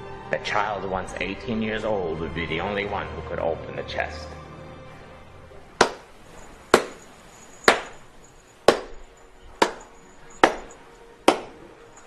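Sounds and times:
slow hand clapping: 5.8s - 6.1s, 6.7s - 7.0s, 7.7s - 8.0s, 8.7s - 11.7s.

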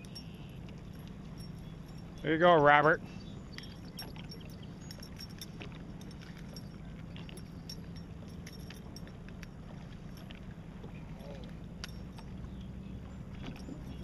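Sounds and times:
faint clicks and clinks: 0.0s - 2.6s, 3.4s - 14.0s
low hum: 0.0s - 14.0s.

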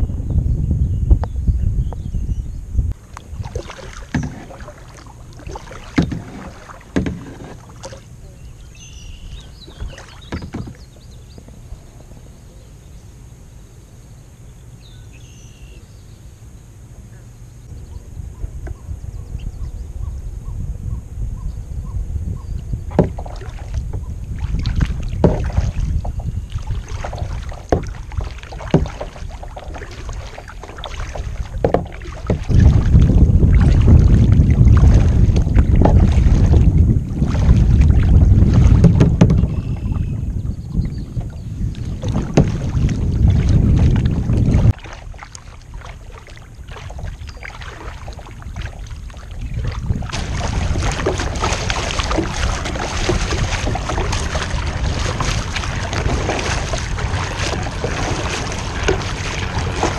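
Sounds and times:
wind rumble on microphone: 0.0s - 13.6s, 16.9s - 59.9s
paddle splashing in water: 3.0s - 11.7s, 22.9s - 59.9s
water hissing along kayak bow: 3.0s - 14.2s, 22.8s - 59.9s
water dripping: 24.5s - 36.7s.

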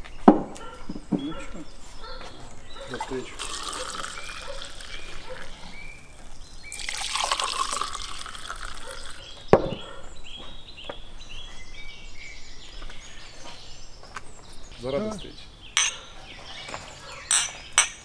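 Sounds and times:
wine pouring into a glass: 3.3s - 5.6s, 6.2s - 9.2s
knock on wooden table: 9.5s - 9.9s.

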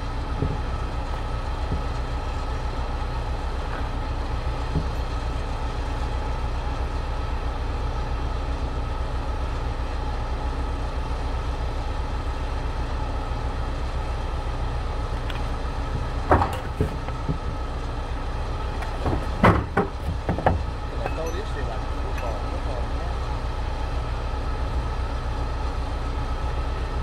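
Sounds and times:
vehicle engine idling: 0.0s - 27.0s
sharp knocks: 19.0s - 21.2s.

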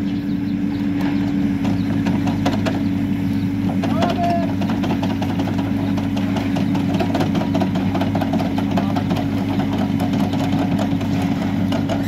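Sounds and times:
diesel engine running: 0.0s - 12.0s
backhoe bucket digging: 3.6s - 12.0s.

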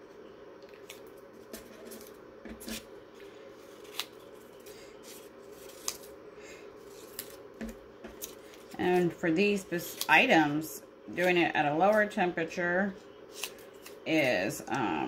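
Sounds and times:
steady low hum: 0.0s - 15.0s
paper rustling: 0.7s - 6.1s, 6.8s - 9.1s.

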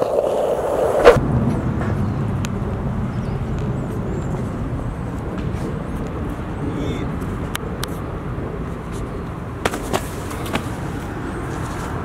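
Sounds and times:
low outdoor background rumble: 1.2s - 9.7s.

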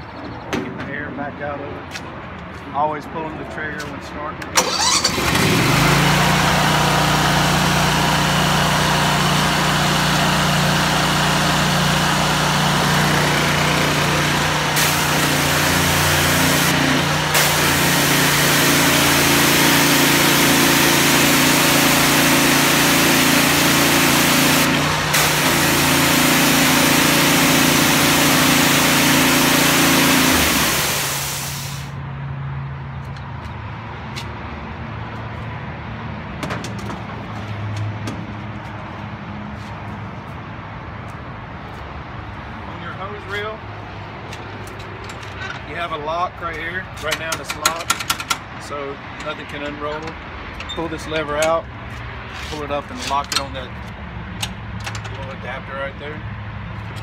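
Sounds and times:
pressure washer engine running: 4.6s - 32.0s
loud hiss of water spray: 6.5s - 32.0s.

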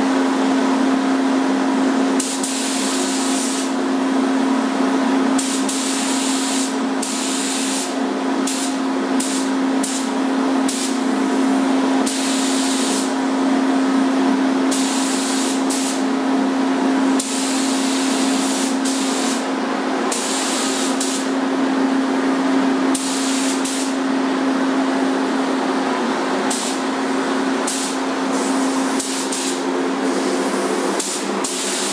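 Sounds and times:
paint spray gun hissing: 2.2s - 3.8s, 5.4s - 11.0s, 12.0s - 13.1s, 14.7s - 16.0s, 17.2s - 19.5s, 20.1s - 21.3s, 22.9s - 24.0s, 26.5s - 26.9s, 27.6s - 31.9s.

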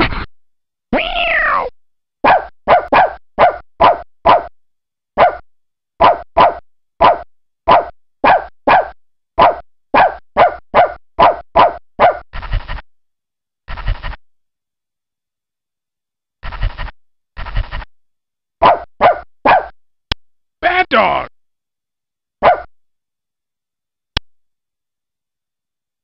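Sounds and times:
digitized dog bark: 1.2s - 4.5s, 5.2s - 5.4s, 6.0s - 12.5s, 18.6s - 19.8s, 22.4s - 22.7s.

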